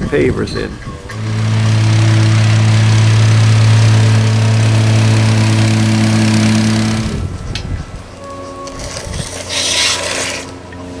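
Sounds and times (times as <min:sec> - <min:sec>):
plate compactor running: 0:01.1 - 0:08.2.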